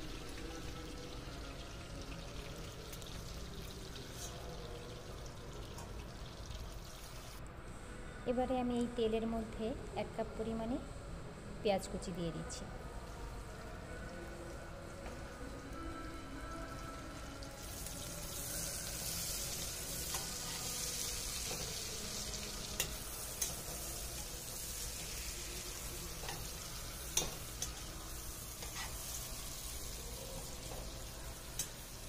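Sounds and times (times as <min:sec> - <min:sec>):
onion sizzling in hot oil: 0:00.0 - 0:07.4, 0:16.7 - 0:32.0.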